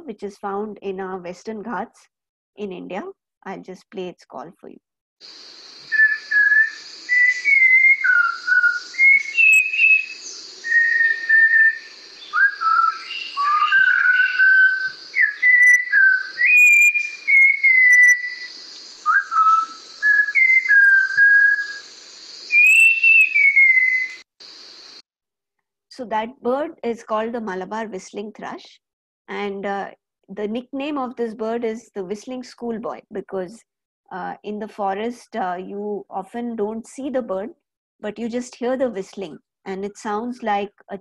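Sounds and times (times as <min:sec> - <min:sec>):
steady high hiss: 0:05.2 - 0:25.0
thrush whistling song: 0:05.2 - 0:25.0.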